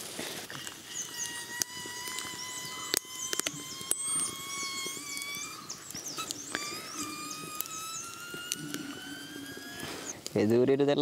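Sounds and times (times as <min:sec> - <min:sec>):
wood fire crackling pops: 0:00.0 - 0:07.8
birds chirping: 0:00.5 - 0:11.0
thin rising whistle: 0:00.6 - 0:10.2.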